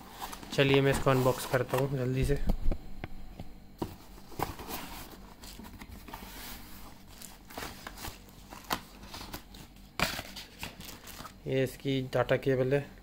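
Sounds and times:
plastic wrap rustling: 4.0 - 11.4.

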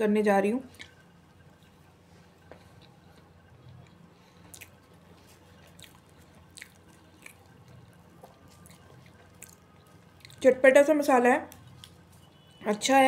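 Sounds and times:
low steady hum: 0.0 - 13.0
chewing with lip smacks: 0.7 - 1.8, 2.4 - 10.5.

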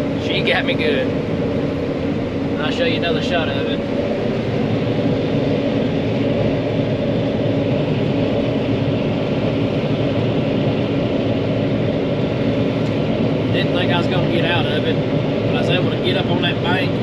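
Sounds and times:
diesel engine and machinery drone: 0.0 - 17.0.

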